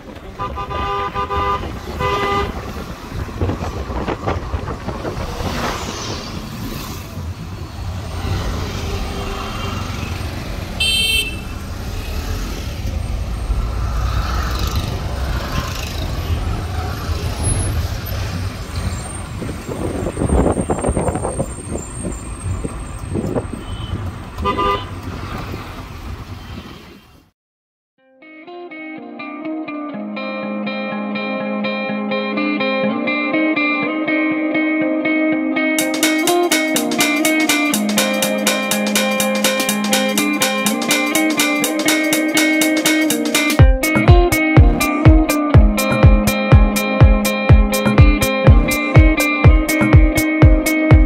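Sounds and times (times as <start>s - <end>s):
vehicle engines rumbling: 0.0s - 27.3s, 35.8s - 51.0s
car horns tooting: 0.1s - 2.9s, 9.5s - 12.2s, 23.3s - 25.0s.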